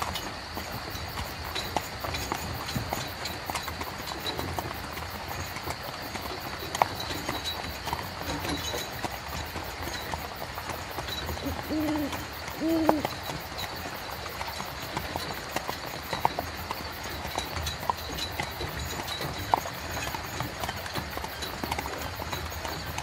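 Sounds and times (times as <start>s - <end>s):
horse hooves clip-clopping: 0.0s - 23.0s
short hooting calls: 11.4s - 13.2s.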